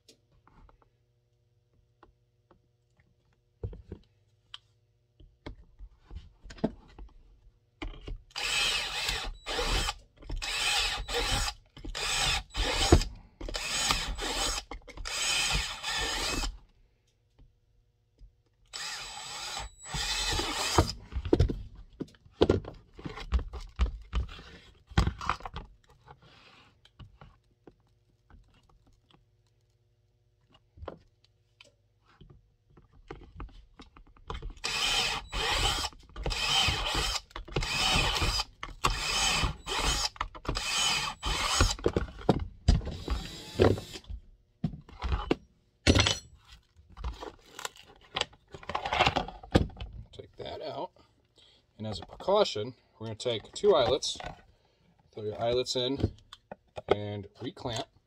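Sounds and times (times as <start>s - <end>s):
power drill drilling: 8.3s - 16.5s, 18.7s - 21.0s, 34.6s - 41.8s, 42.9s - 44.1s.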